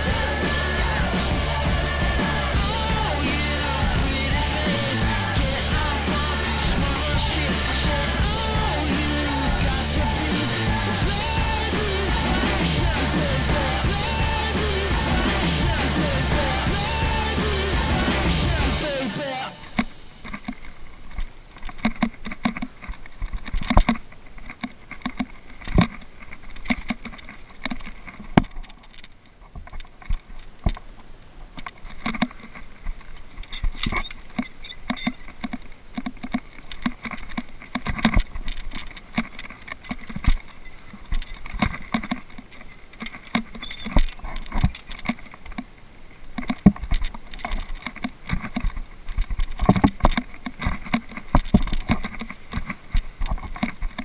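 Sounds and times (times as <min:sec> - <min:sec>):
steel chain clinking: 0:43.5 - 0:45.0.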